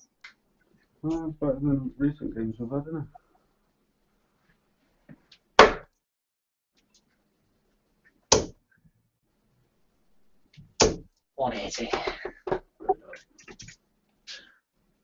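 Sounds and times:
darts thudding into dartboard: 5.6s - 5.9s, 10.8s - 11.1s.

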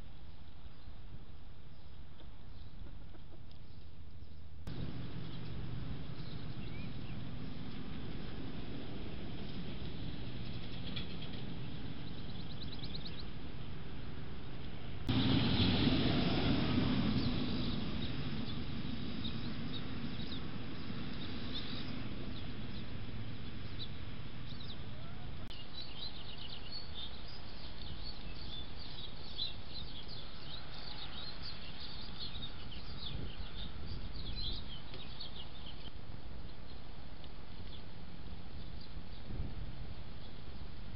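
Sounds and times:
steady outdoor hiss: 0.0s - 40.9s
small birds chirping: 0.2s - 13.5s, 17.0s - 39.5s
low rush of noise: 4.6s - 34.8s.

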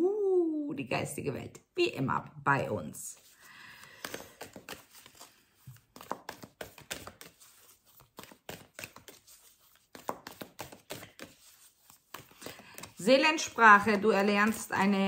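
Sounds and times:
cards being shuffled: 3.2s - 15.0s.

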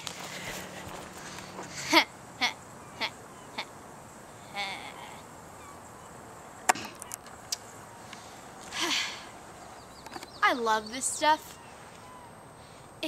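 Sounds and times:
breathy voice sound: 8.2s - 9.4s.

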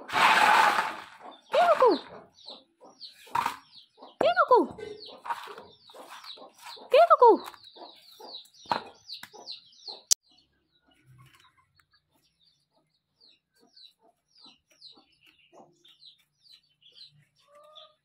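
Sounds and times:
chickens clucking: 0.0s - 18.0s
chickens peeping: 0.0s - 18.0s.

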